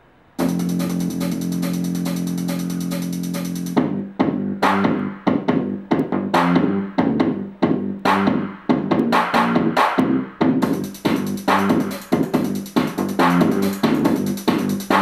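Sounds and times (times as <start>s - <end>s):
held chord: 0.4s - 3.8s
drum machine hits: 0.4s - 15.0s.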